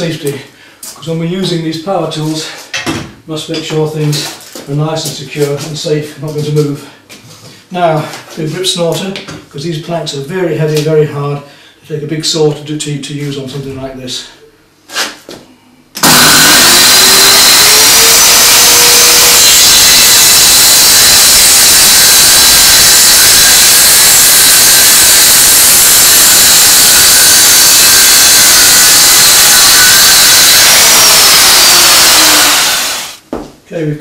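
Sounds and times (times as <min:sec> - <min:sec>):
electric saw cutting wood: 0:16.0 - 0:33.2.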